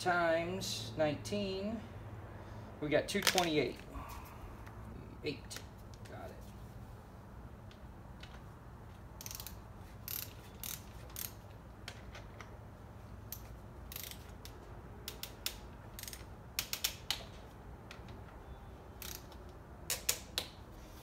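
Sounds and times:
torque wrench ratchet clicking: 9.2s - 11.4s, 13.3s - 17.2s, 19.0s - 20.2s.

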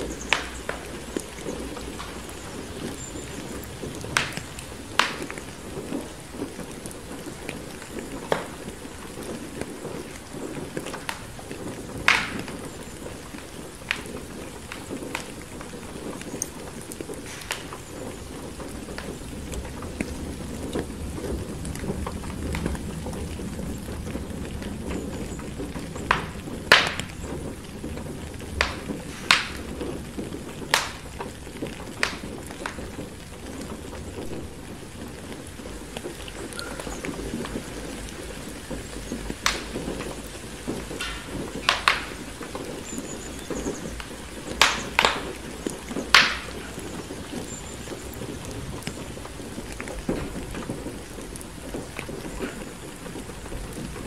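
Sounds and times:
steady rain: 0.0s - 54.0s
wood fire crackling and popping: 0.0s - 54.0s
low rumble: 18.2s - 30.2s.

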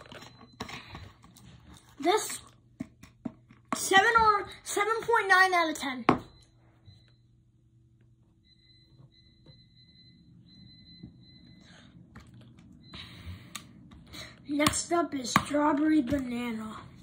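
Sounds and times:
faint high whine: 5.5s - 17.0s.

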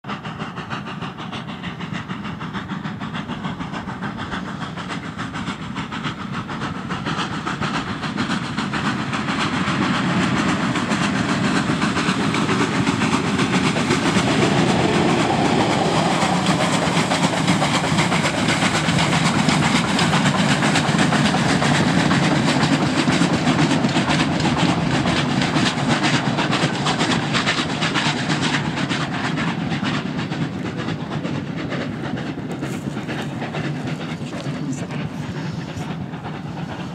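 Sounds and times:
steam locomotive passing: 0.0s - 36.9s.

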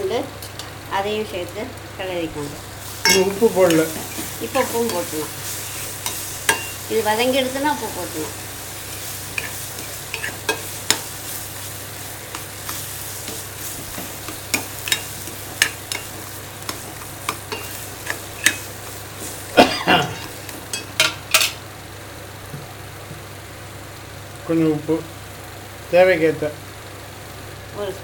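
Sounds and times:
oil sizzling: 0.0s - 28.0s
ladle scraping metal pan: 2.9s - 6.8s.

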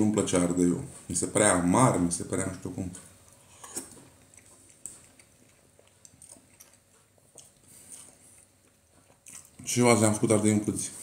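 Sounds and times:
man chewing food: 3.1s - 10.0s.

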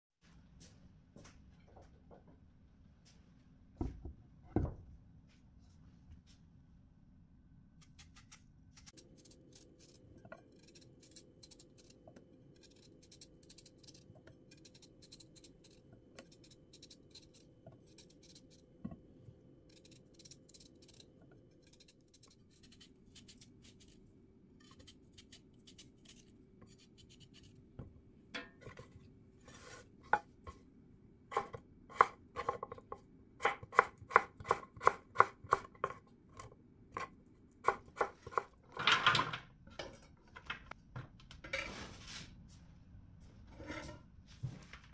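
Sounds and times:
knife scraping peel: 7.8s - 12.0s, 12.6s - 18.6s, 19.7s - 24.0s, 24.6s - 27.6s.

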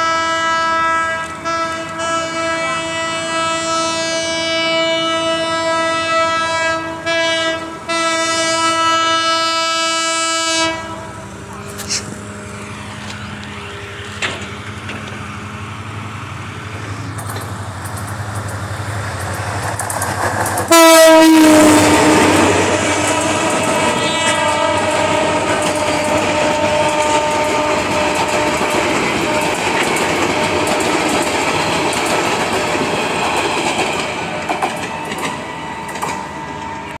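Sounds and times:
locomotive horn blast: 0.0s - 14.4s, 20.7s - 31.1s
train low rumble: 0.0s - 37.0s
train wheels clattering over rail joints: 11.4s - 37.0s.

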